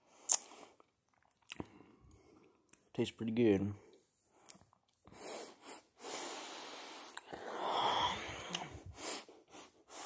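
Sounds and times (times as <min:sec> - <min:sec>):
chewing chocolate: 0:00.3 - 0:01.8
person breathing noisily: 0:05.1 - 0:10.0.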